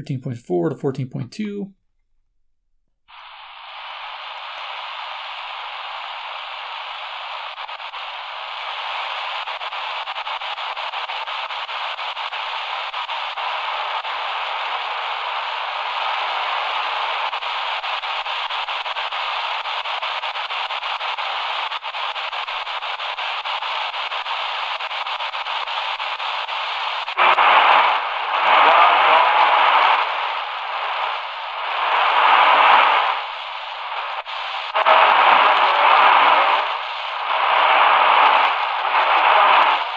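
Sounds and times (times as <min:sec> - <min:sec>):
radio station signal: 0:00.0 - 0:01.7, 0:26.9 - 0:39.9
radio static hissing: 0:03.1 - 0:39.9.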